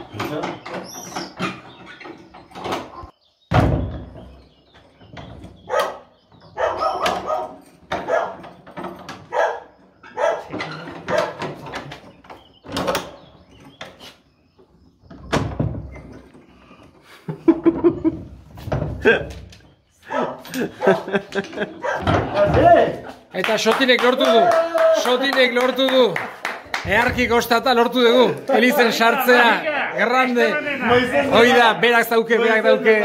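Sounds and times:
dog barking: 5.7s - 8.4s, 9.3s - 10.5s, 11.1s - 11.4s, 20.1s - 21.1s, 21.8s - 22.1s.

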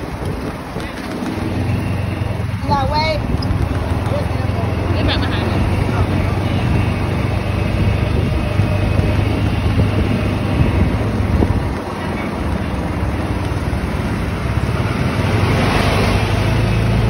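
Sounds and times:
wind on microphone: 0.0s - 4.5s, 5.3s - 16.6s
golf cart motor hum: 0.0s - 17.0s
road rush: 0.0s - 17.0s.

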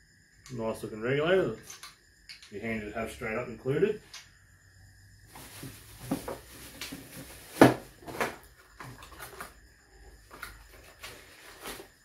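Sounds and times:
cardboard rustling: 5.3s - 9.5s, 10.3s - 12.0s
knocks on cardboard box: 7.6s - 8.3s.

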